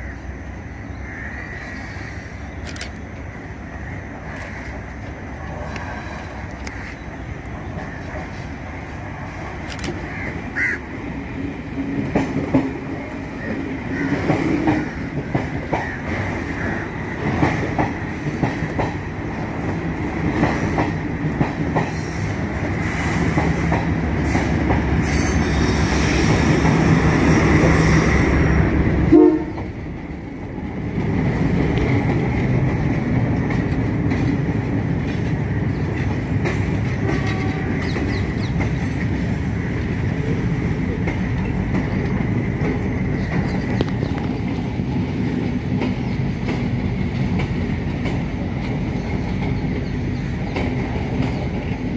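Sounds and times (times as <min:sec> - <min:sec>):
train engine running: 0:00.0 - 0:51.9
train wheels clacking over rail joints: 0:11.4 - 0:28.3, 0:29.4 - 0:51.9.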